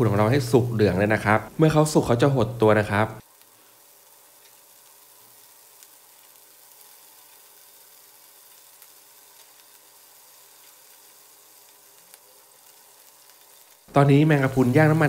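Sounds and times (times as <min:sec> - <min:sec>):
skewers sizzling on grill pan: 0:00.0 - 0:15.0
tiny crackles: 0:03.2 - 0:15.0.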